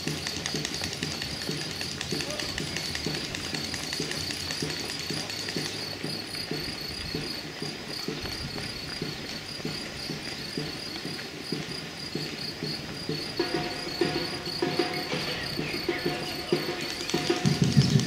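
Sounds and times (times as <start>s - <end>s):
crickets chirping: 0.0s - 18.0s
runners footsteps on asphalt: 0.0s - 18.0s.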